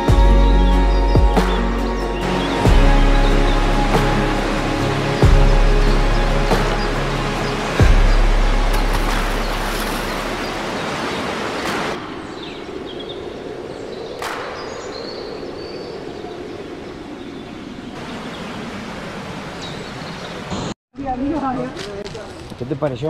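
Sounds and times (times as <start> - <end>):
waterfall rushing water: 2.2 - 12.6, 18.0 - 20.8.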